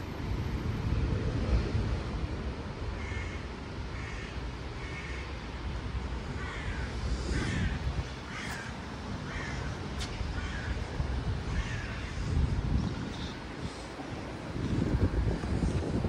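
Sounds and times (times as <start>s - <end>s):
crow-like bird cawing: 3.0s - 5.3s, 6.4s - 10.9s, 11.5s - 12.3s.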